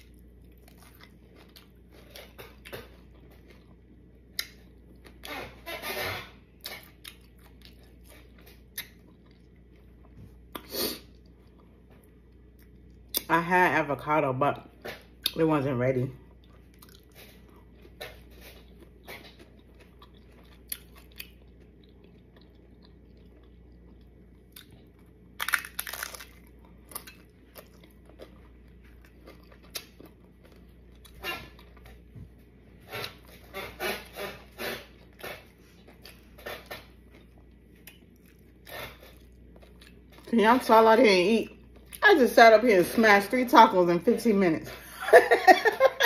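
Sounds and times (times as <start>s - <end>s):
person chewing crunchy food: 0.0s - 5.3s, 6.5s - 13.3s, 16.2s - 40.4s.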